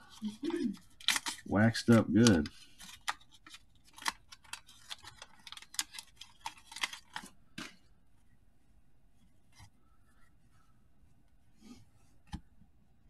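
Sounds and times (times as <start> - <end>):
wax paper wrapper tearing: 0.9 - 7.2.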